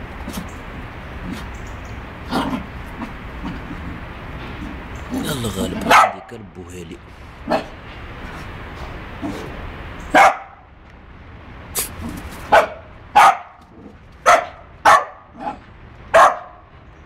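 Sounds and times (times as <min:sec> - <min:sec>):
small dog barking: 0:05.8 - 0:06.3, 0:07.4 - 0:07.8, 0:10.1 - 0:10.6, 0:12.5 - 0:13.6, 0:14.2 - 0:16.7.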